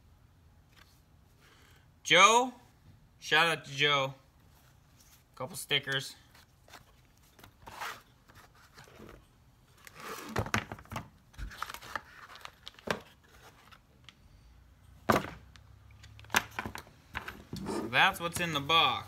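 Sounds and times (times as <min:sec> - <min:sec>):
handling noises: 0:04.4 - 0:14.2
cardboard and packaging rustling: 0:06.2 - 0:14.0.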